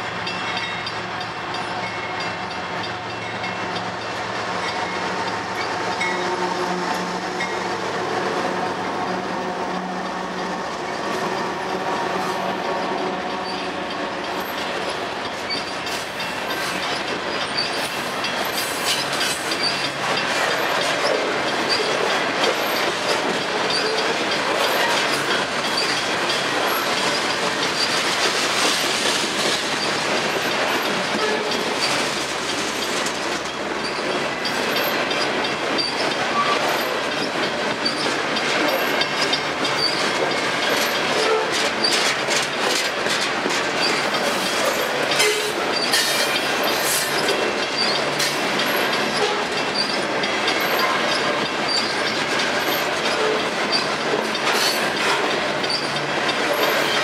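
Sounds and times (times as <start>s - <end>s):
diesel locomotive engine drone: 0.0s - 57.0s
freight cars rumbling: 0.0s - 57.0s
wheels clacking over rail joints: 0.0s - 57.0s.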